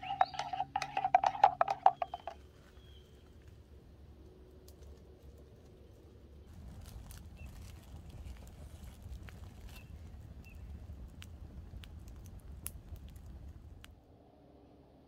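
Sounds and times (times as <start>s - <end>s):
bird chirps: 0.0s - 2.4s
light irregular crackling patter: 0.0s - 13.9s.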